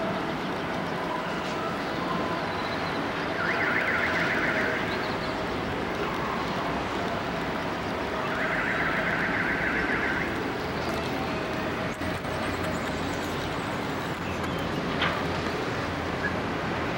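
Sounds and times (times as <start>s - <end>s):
steady street hum: 0.0s - 16.9s
warbling electronic alarm: 3.3s - 5.0s, 8.1s - 10.5s.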